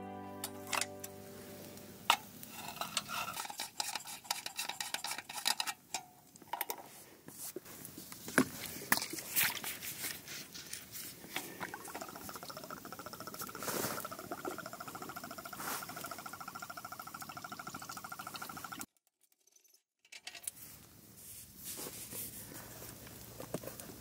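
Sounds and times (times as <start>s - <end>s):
metal utensils clinking: 0.4s - 1.1s, 2.1s - 6.8s
utensils scraping cookware: 2.1s - 6.8s.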